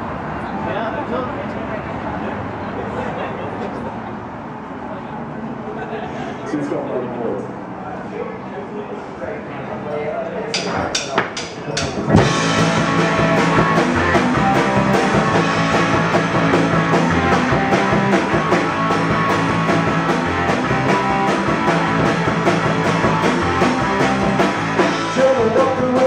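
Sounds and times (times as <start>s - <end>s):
rock band playing: 11.8s - 26.0s.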